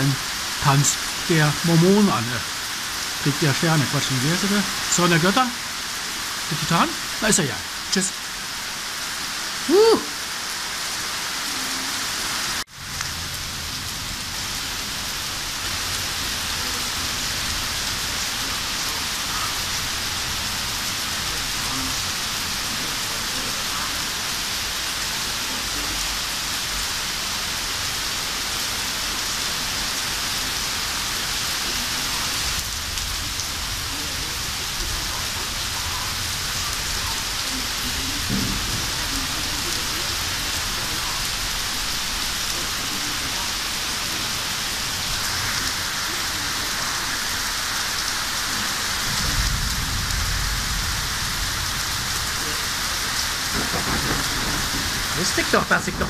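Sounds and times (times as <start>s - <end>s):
heavy rain falling: 0.0s - 56.0s
distant thunder rumble: 38.0s - 40.0s, 49.0s - 56.0s.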